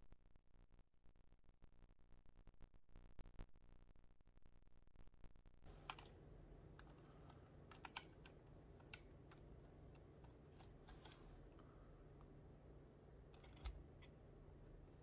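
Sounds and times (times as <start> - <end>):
plastic building blocks clicking: 6.8 - 11.2.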